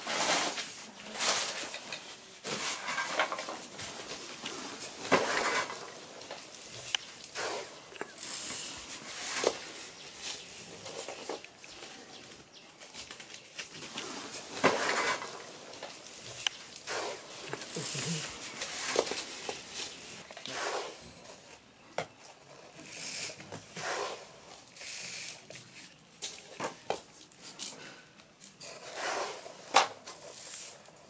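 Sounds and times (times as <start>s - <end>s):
granules rustling and pattering: 0.0s - 23.7s.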